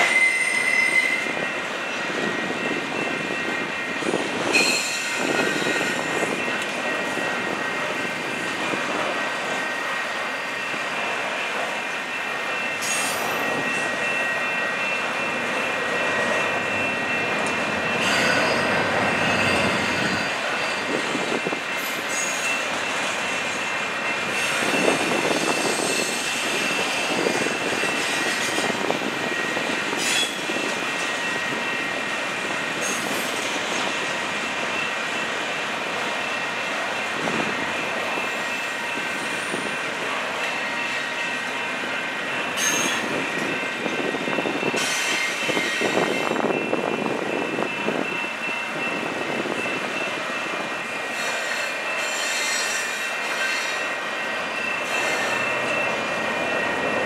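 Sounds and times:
high-pitched wheel squeal: 0.0 - 1.4, 4.5 - 6.6, 18.0 - 21.1, 24.3 - 28.7, 29.4 - 31.4, 42.6 - 43.6, 50.9 - 54.0, 54.6 - 57.0
train wheels rolling on rail: 0.0 - 57.0.

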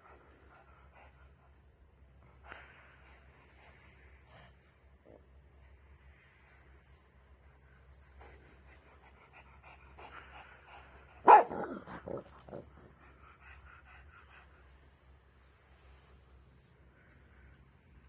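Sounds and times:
dog barking: 11.2 - 12.2.

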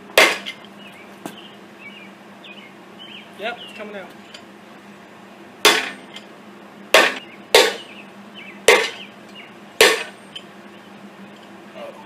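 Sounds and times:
hammer striking metal: 0.2 - 0.6, 5.6 - 6.2, 7.0 - 7.9, 8.7 - 9.0, 9.8 - 10.2.

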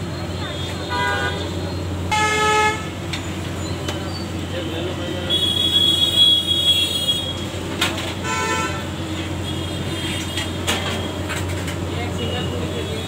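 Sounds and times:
vehicle horns: 0.5 - 3.0, 5.2 - 7.5, 8.2 - 11.3.

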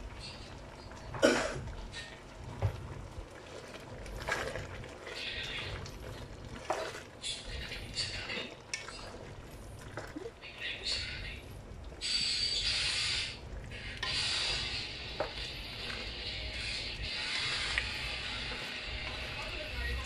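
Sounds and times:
wooden spoon scraping metal pot: 4.0 - 10.2, 12.0 - 20.0.

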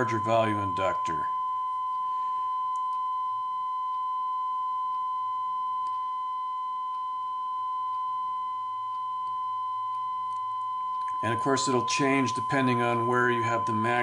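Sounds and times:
sine test tone: 0.0 - 14.0.

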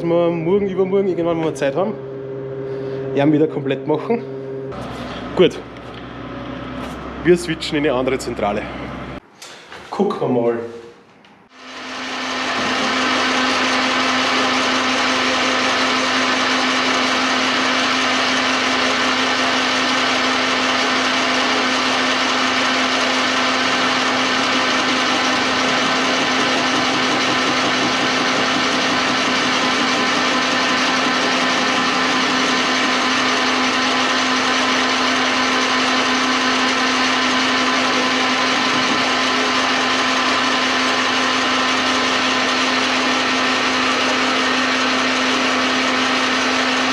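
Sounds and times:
metal lathe running: 11.6 - 46.9.

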